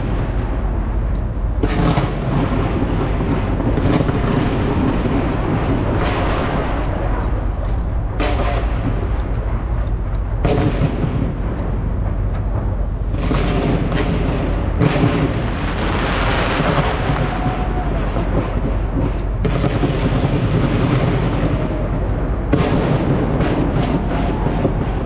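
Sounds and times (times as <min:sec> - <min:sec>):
fireworks bangs: 0:00.0 - 0:25.0
fireworks crackling: 0:00.0 - 0:25.0.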